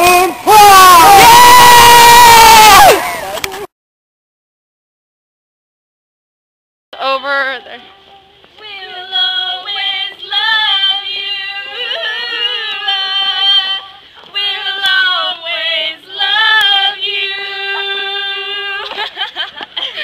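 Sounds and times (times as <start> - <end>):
young women singing together: 8.6 - 19.2.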